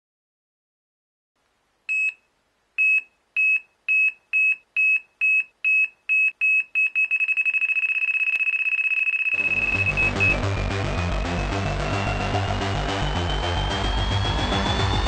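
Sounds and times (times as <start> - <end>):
bite alarm beeping: 2.9 - 10.4.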